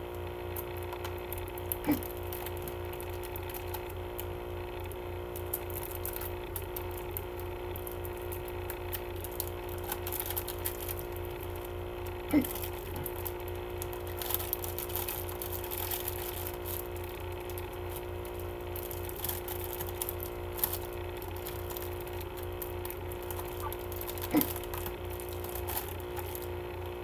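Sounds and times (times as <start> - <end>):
steady hum: 0.0 - 27.0
plastic wrapping crinkling: 0.6 - 4.3, 5.3 - 26.6.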